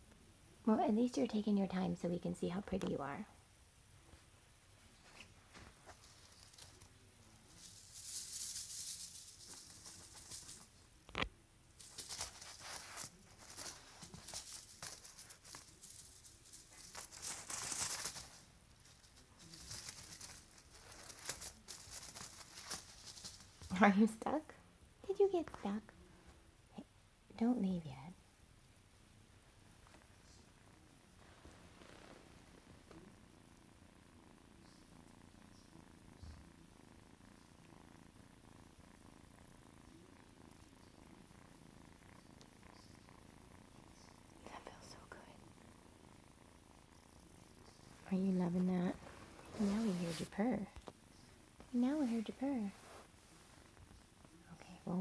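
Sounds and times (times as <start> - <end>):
kitten rustling and scratching fabric: 4.0 - 23.9, 29.6 - 33.1, 39.9 - 55.0.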